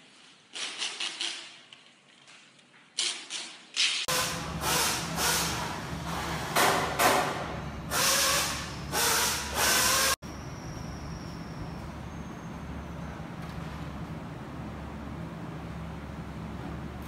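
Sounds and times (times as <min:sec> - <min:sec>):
low machinery hum: 0:04.1 - 0:17.0
compressed air hissing: 0:07.9 - 0:10.2.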